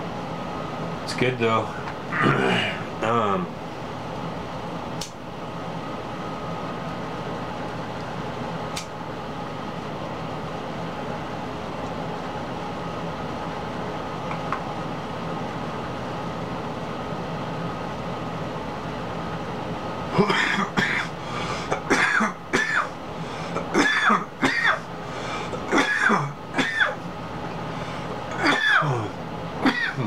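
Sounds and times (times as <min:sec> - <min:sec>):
room hum: 0:00.0 - 0:30.0
man coughing: 0:02.1 - 0:02.9, 0:20.1 - 0:24.9, 0:25.6 - 0:27.0, 0:28.3 - 0:30.0.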